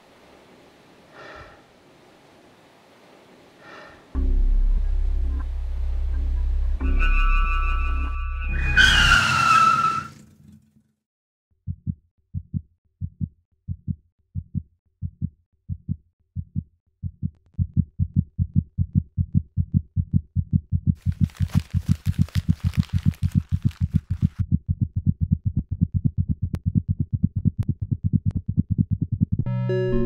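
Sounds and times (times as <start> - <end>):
shrill tone falling in pitch: 6.8 - 10.1
heartbeat thumps: 11.7 - 21.3, 23.3 - 29.5.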